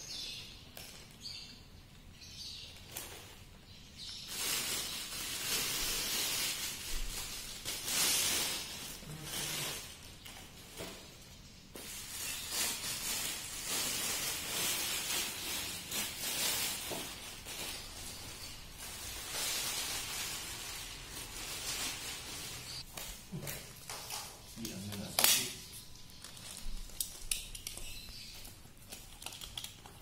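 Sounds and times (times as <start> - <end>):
plastic wrap crinkling: 2.8 - 10.8, 11.8 - 30.0.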